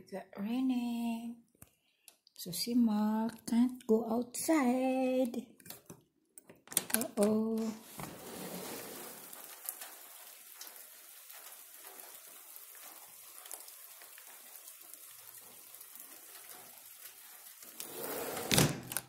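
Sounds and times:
light rain on roof: 0:06.8 - 0:19.0.

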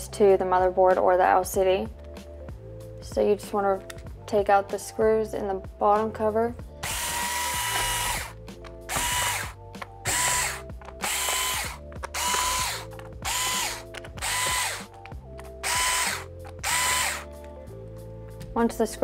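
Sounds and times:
electric screwdriver whining: 0:06.8 - 0:17.5.

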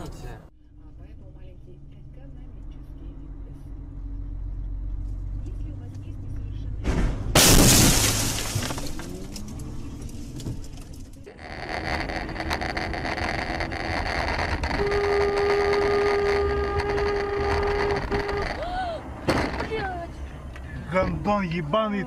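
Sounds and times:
road and engine noise in car: 0:00.0 - 0:07.5, 0:08.3 - 0:22.0
car horn blast: 0:14.6 - 0:18.7.

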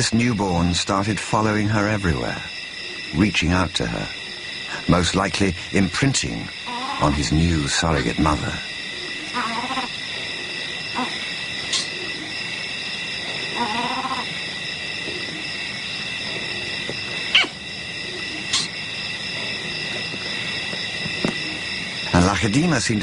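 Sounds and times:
steady high-pitched drone: 0:00.0 - 0:23.0
short pitched animal calls: 0:06.6 - 0:07.1, 0:09.2 - 0:09.9, 0:13.5 - 0:14.4, 0:17.3 - 0:17.6.

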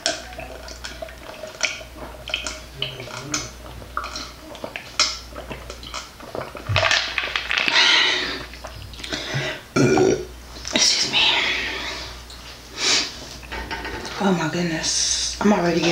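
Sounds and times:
person gulping a drink: 0:00.0 - 0:10.8.

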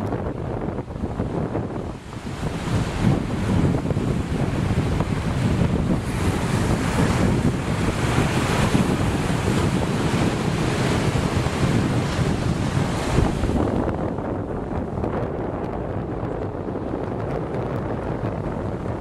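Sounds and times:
sea waves: 0:00.0 - 0:19.0
wind buffeting microphone: 0:00.0 - 0:19.0.

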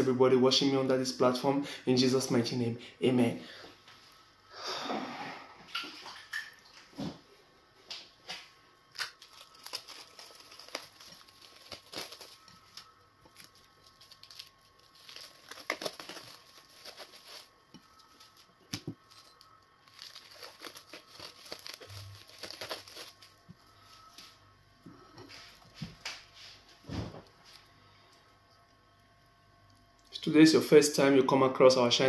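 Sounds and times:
plastic bag crinkling: 0:08.9 - 0:24.4.

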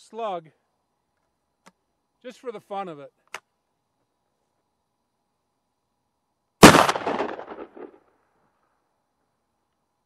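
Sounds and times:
shotgun shot echoing: 0:06.6 - 0:08.0.

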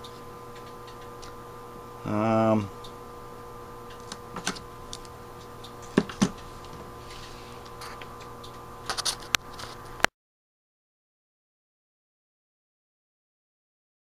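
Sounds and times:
steady background hum: 0:00.0 - 0:10.1.

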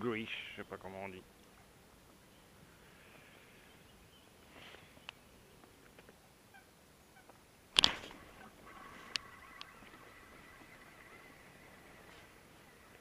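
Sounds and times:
fishing reel whirring: 0:08.1 - 0:12.0.

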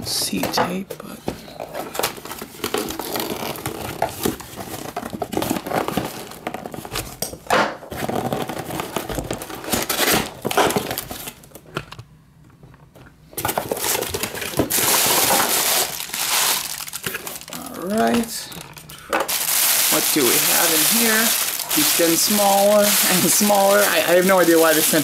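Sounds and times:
cardboard tearing and rubbing: 0:02.4 - 0:07.1, 0:13.7 - 0:18.7, 0:19.3 - 0:25.0
packing paper crinkling: 0:13.5 - 0:25.0.

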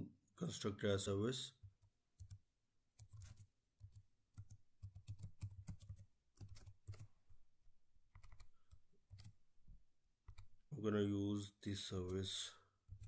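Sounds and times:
typing on a computer keyboard: 0:01.7 - 0:02.4, 0:03.0 - 0:07.1, 0:08.1 - 0:09.4, 0:10.2 - 0:10.6.

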